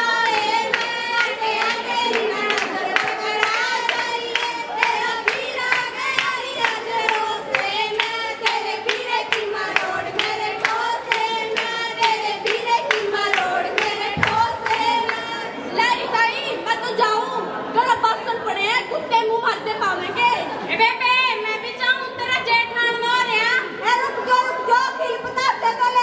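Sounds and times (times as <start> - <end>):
hand-clapping: 0.0 - 15.4
women singing in chorus: 0.0 - 17.8.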